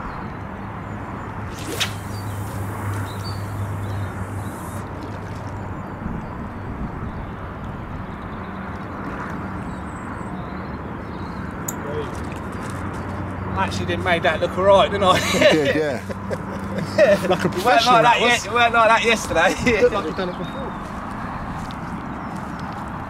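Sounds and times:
wind on microphone: 0:01.4 - 0:08.2
fishing rod cast swish: 0:01.5 - 0:04.9.

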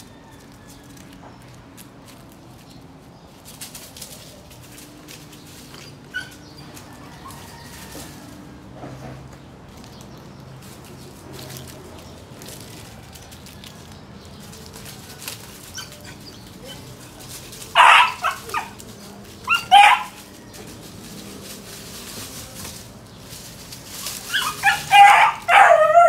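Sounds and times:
dry leaves rustling underfoot: 0:00.0 - 0:26.0
puppy barking in high yips: 0:06.1 - 0:06.4, 0:17.7 - 0:18.8, 0:19.4 - 0:20.2, 0:24.3 - 0:26.0.

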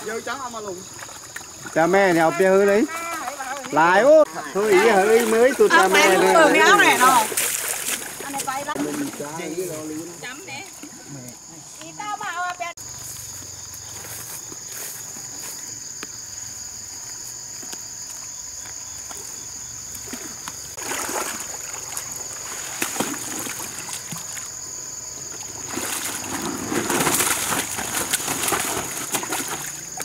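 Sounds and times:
water splashing from wading: 0:00.0 - 0:10.0, 0:19.9 - 0:24.5, 0:25.3 - 0:30.0.

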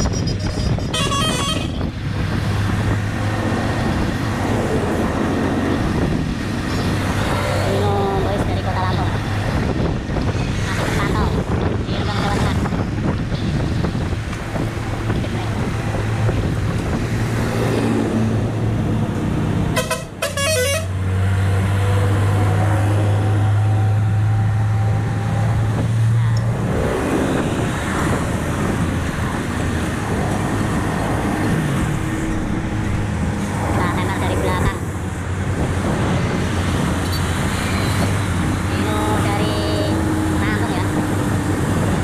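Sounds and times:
diesel truck passing: 0:00.0 - 0:42.0
road traffic: 0:00.0 - 0:42.0
horn blast: 0:00.6 - 0:01.8, 0:19.7 - 0:21.0.

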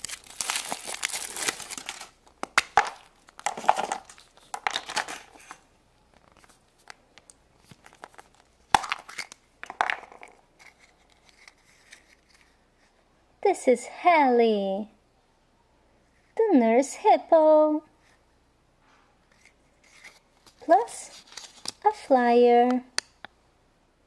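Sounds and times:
foil wrapper crinkling and tearing: 0:00.0 - 0:05.6, 0:19.9 - 0:21.8.

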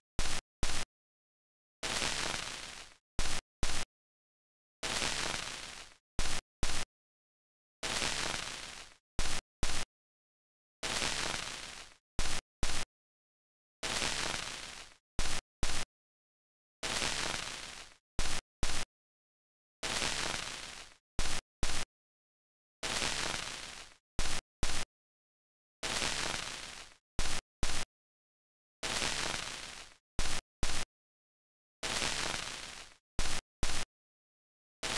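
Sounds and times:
noise burst hiss: 0:01.8 - 0:03.8, 0:04.8 - 0:06.8, 0:07.8 - 0:09.8, 0:10.8 - 0:12.8, 0:13.9 - 0:15.8, 0:16.9 - 0:18.8, 0:19.8 - 0:21.8, 0:22.8 - 0:24.8, 0:25.8 - 0:27.8, 0:28.8 - 0:30.8, 0:31.8 - 0:33.8.

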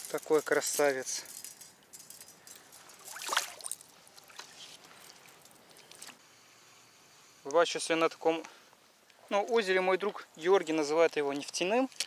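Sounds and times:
lake water splashing and trickling: 0:02.4 - 0:06.2.

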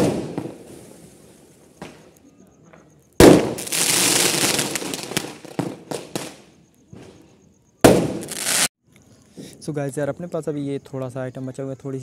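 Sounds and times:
firework pops: 0:00.0 - 0:00.9, 0:01.8 - 0:08.7
firework bang: 0:00.0 - 0:01.2, 0:03.2 - 0:06.4, 0:07.8 - 0:08.7
fireworks crackling hiss: 0:00.0 - 0:02.2, 0:03.2 - 0:08.7.

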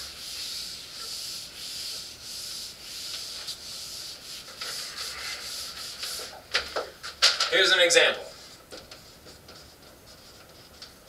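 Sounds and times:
eraser rubbing on whiteboard: 0:00.0 - 0:06.4.

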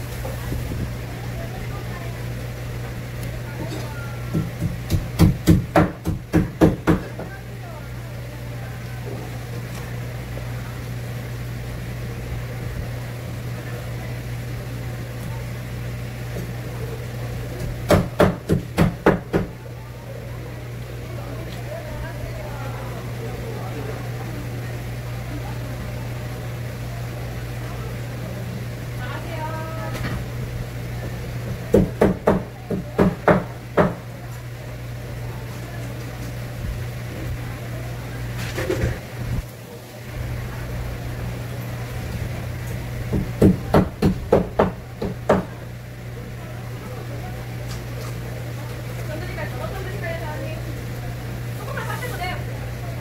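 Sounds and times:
knocks on wooden cutting board: 0:04.3 - 0:07.3.

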